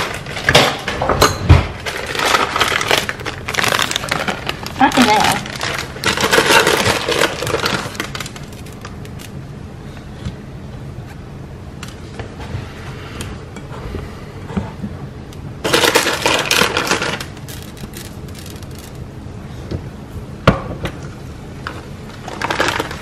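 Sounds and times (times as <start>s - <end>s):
plastic bag crinkling: 1.8s - 9.4s, 15.7s - 19.0s.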